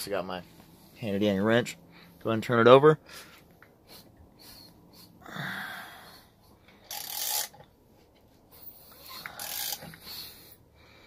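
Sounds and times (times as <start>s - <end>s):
ratchet wrench clicking: 6.8s - 7.6s, 9.0s - 10.1s.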